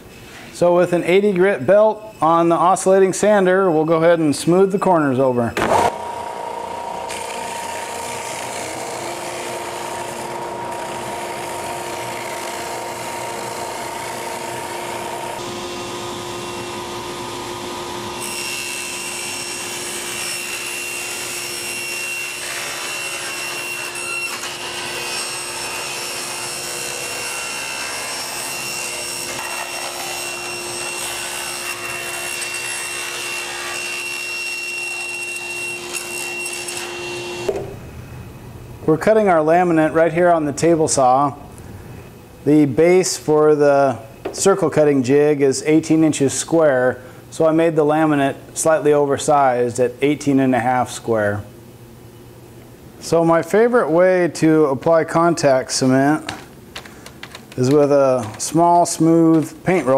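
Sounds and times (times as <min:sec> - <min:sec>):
table saw cutting: 0:05.6 - 0:37.6.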